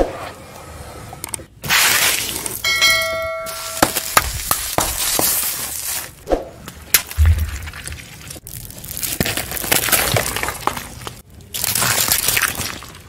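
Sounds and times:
bell chime: 2.6s - 4.2s
car tyre crushing small objects: 3.8s - 6.1s, 6.8s - 13.0s.

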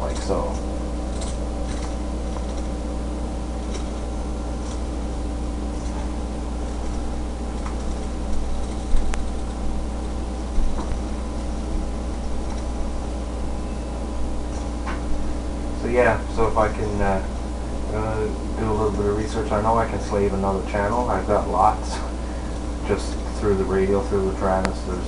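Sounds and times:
machine hum with low rumble: 0.0s - 25.0s.

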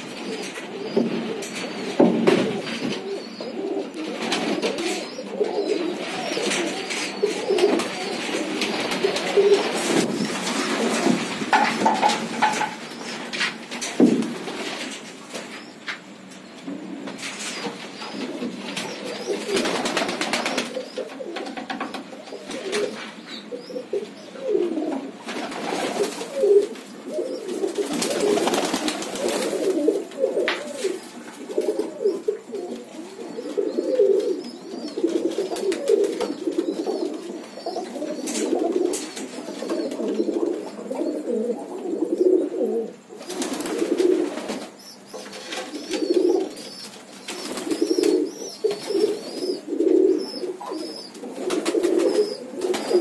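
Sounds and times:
pigeons cooing: 0.0s - 53.0s.

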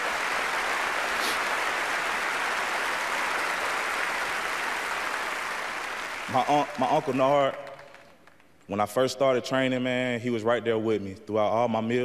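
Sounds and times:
large audience applauding: 0.0s - 8.6s.

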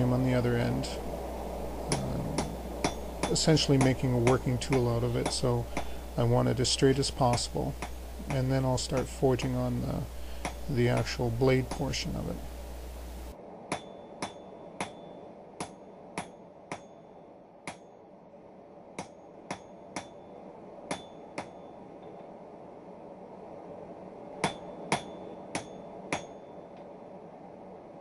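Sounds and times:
hammer striking hot steel on anvil: 1.9s - 12.4s, 13.7s - 17.0s, 19.0s - 20.2s, 20.9s - 21.5s, 24.4s - 26.5s.

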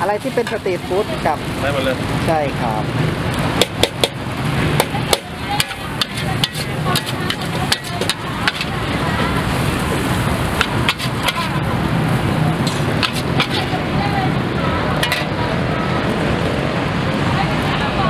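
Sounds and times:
steady background noise: 0.0s - 18.0s
metal spatula clacking on wok: 4.8s - 8.8s, 10.5s - 11.6s, 12.6s - 13.7s, 15.0s - 15.4s.

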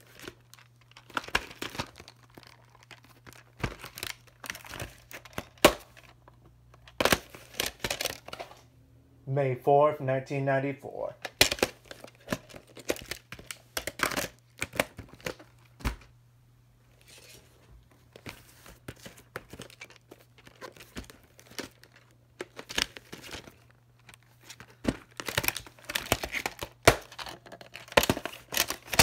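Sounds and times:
plastic cases clicking and snapping: 0.0s - 8.6s, 11.2s - 16.1s, 18.2s - 29.0s.

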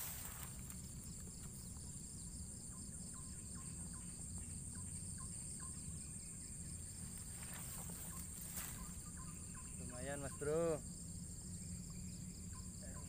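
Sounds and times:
insect chorus droning: 0.0s - 13.0s.

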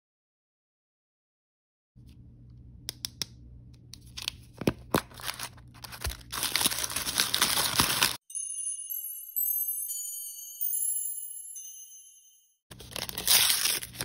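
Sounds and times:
wrapper crinkling: 4.7s - 8.2s, 12.7s - 14.0s.

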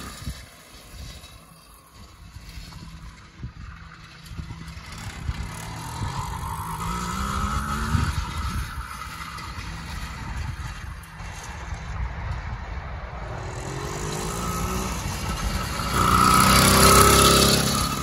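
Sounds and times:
two-stroke bike engine passing: 0.0s - 18.0s.

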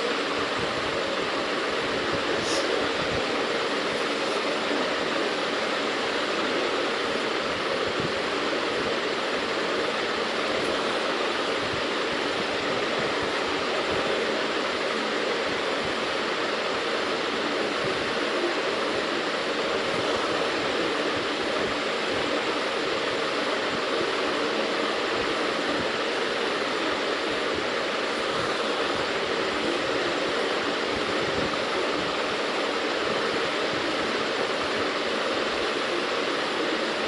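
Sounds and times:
steady rushing hiss: 0.0s - 37.0s.

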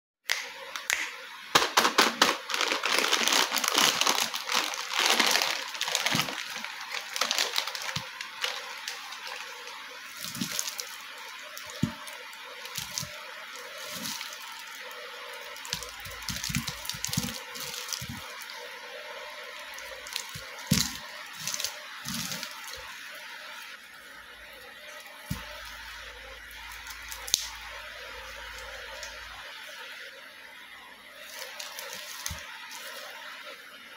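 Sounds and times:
plastic packet crinkling: 1.5s - 14.7s, 15.6s - 18.4s, 31.3s - 33.0s
plastic wrappers rustling: 1.5s - 14.9s, 15.5s - 18.5s, 20.0s - 22.9s, 31.2s - 33.2s.

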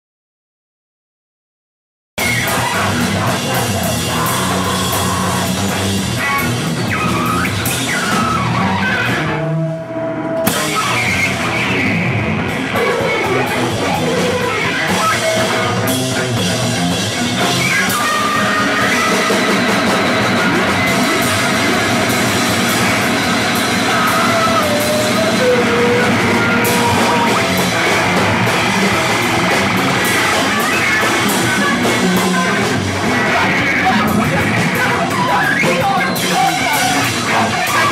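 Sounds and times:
loud distorted noise music: 2.2s - 37.9s
sliding pitched tones: 12.6s - 37.9s.

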